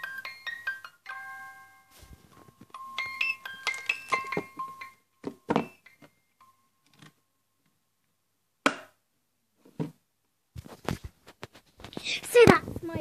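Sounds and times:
music box plinking notes: 0:00.0 - 0:06.7.

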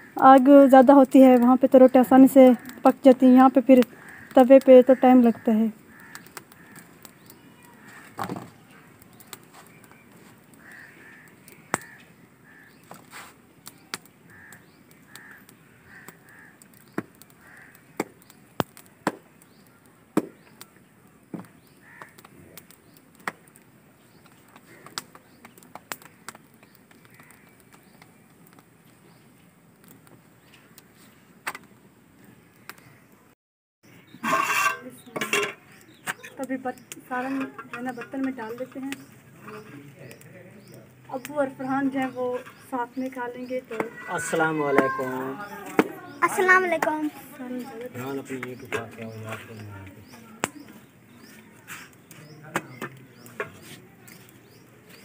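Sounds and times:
crows cawing: 0:00.0 - 0:00.5, 0:02.2 - 0:08.9, 0:10.5 - 0:13.2, 0:14.2 - 0:18.2, 0:21.7 - 0:22.4, 0:24.5 - 0:25.1, 0:25.9 - 0:27.7, 0:43.7 - 0:46.7
sharp clicks and slaps: 0:06.0 - 0:10.0, 0:11.2 - 0:12.1, 0:13.7 - 0:20.6, 0:21.3 - 0:28.7, 0:31.4 - 0:31.7, 0:35.8 - 0:39.2, 0:45.6 - 0:47.1, 0:48.3 - 0:54.4.

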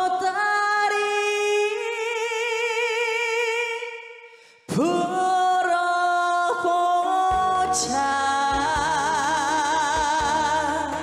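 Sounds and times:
person singing long wordless notes: 0:00.0 - 0:11.0
bass and drums backing track: 0:07.3 - 0:11.0.

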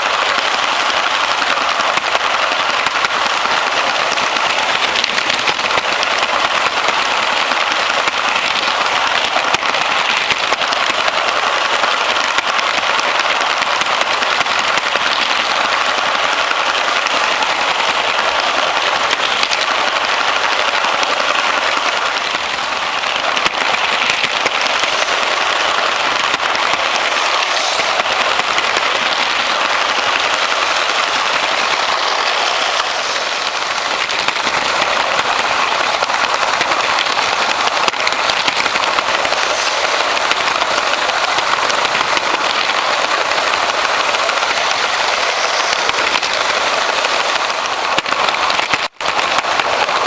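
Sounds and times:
toy train motors whirring: 0:00.0 - 0:50.0
wheels rattling over rails: 0:00.0 - 0:50.0.

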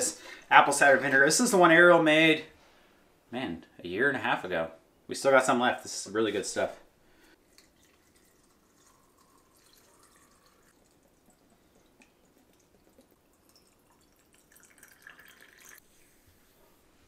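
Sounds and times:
liquid trickling into glass jar: 0:07.4 - 0:15.8.

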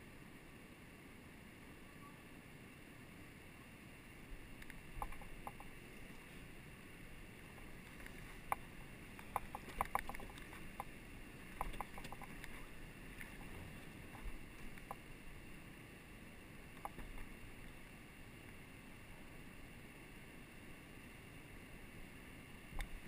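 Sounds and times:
low rush of water: 0:00.0 - 0:23.0
paddle strokes knocking: 0:11.6 - 0:15.0.

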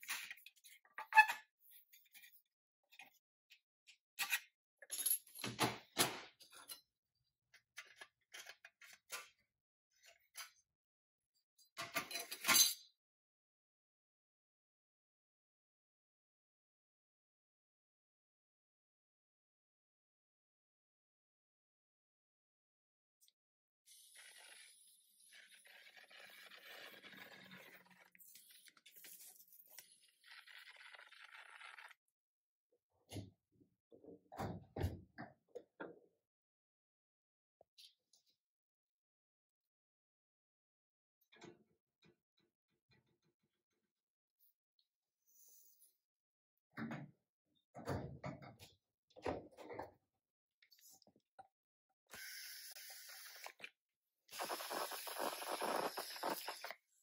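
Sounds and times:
spray gun hissing: 0:54.4 - 0:56.7.

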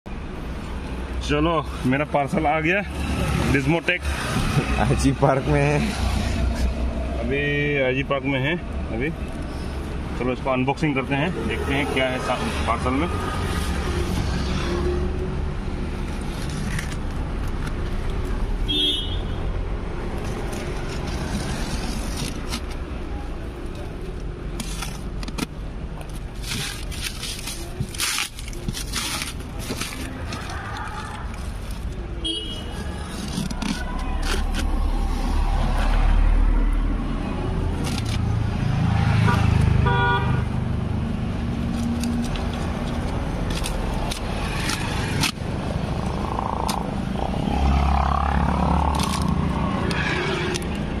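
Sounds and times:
packing tape tearing: 0:20.3 - 0:22.9, 0:24.5 - 0:32.0, 0:32.8 - 0:34.9, 0:37.8 - 0:38.4, 0:41.7 - 0:45.4, 0:48.9 - 0:49.4
plastic wrap crackling: 0:26.0 - 0:32.1.

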